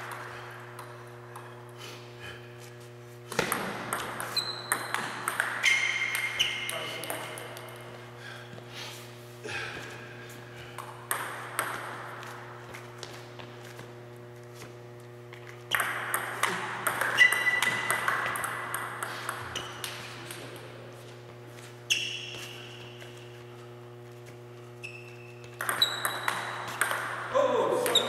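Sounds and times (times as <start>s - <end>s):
steady low hum: 0.0s - 28.0s
ping-pong ball clicking: 3.4s - 7.8s, 10.8s - 11.9s, 15.7s - 20.4s, 25.4s - 28.0s
short squeaks: 21.9s - 22.8s, 24.8s - 26.1s.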